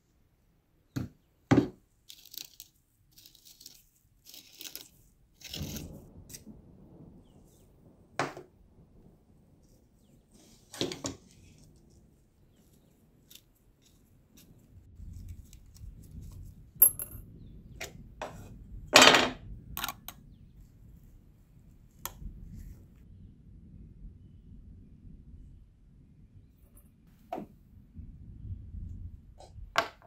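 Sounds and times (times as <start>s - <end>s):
small metal parts clinking: 2.1s - 5.8s, 16.8s - 17.2s.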